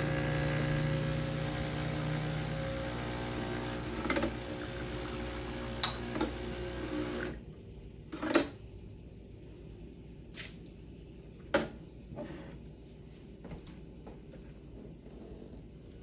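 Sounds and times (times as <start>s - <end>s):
espresso machine pump buzzing: 0.0s - 7.4s.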